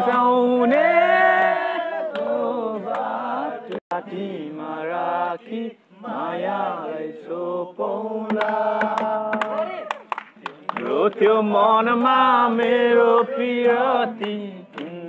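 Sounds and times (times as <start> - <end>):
man singing slow song: 10.4 - 15.0.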